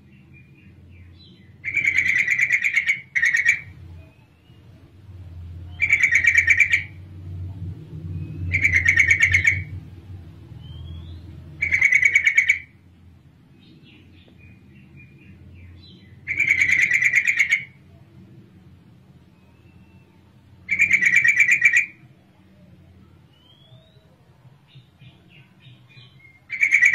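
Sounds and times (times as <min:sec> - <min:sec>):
soft bird chirps: 0:00.0 - 0:12.7, 0:19.2 - 0:26.9
faint low hum: 0:00.0 - 0:26.9
bird chattering call: 0:01.6 - 0:04.2, 0:05.7 - 0:07.0, 0:08.4 - 0:09.8, 0:10.7 - 0:12.8, 0:16.2 - 0:17.8, 0:20.7 - 0:22.0, 0:26.0 - 0:26.9.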